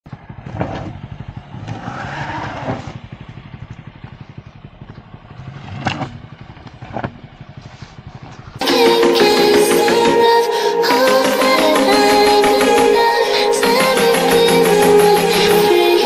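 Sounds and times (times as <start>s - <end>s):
car engine at low revs: 0.1s - 8.6s.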